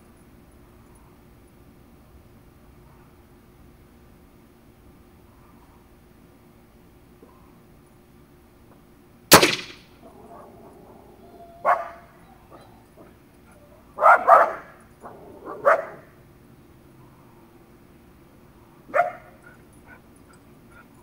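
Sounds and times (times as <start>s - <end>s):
air rifle shot: 9.3s - 9.9s
dog barking: 11.6s - 12.8s, 14.0s - 14.8s, 15.4s - 16.1s, 18.9s - 19.4s.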